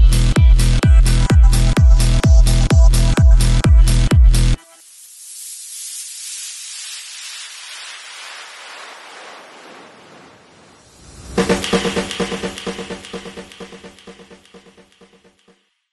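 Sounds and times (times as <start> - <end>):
electronic dance drums and synths: 0.0 - 5.8, 11.2 - 15.5
white-noise sweep hiss: 4.6 - 10.0, 10.7 - 15.1.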